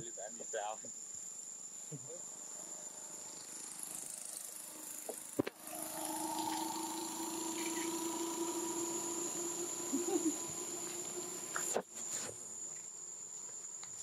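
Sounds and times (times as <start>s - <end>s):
high buzz of insects: 0.0s - 14.0s
steady engine hum: 2.2s - 12.7s.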